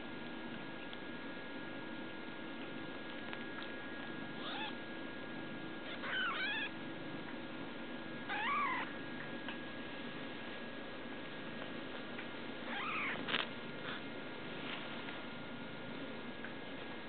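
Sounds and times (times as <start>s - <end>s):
kitten mewing: 4.4s - 4.8s, 5.8s - 6.7s, 8.3s - 8.9s, 12.7s - 13.4s.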